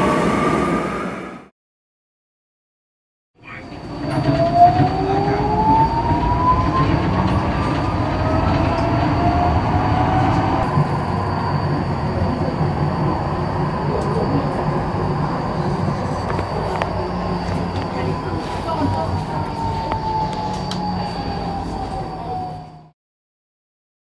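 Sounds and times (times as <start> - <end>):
wheels rumbling on rails: 3.5 - 22.9
train motor whine: 3.7 - 22.9.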